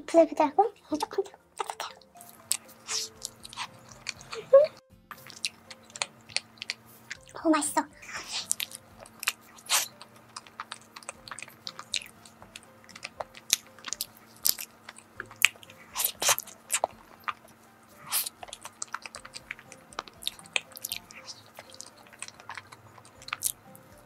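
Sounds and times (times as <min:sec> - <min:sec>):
chewing rice cake: 0:01.5 - 0:04.5, 0:05.1 - 0:07.4, 0:08.0 - 0:24.0
mouth clicks: 0:01.6 - 0:04.4, 0:05.1 - 0:07.3.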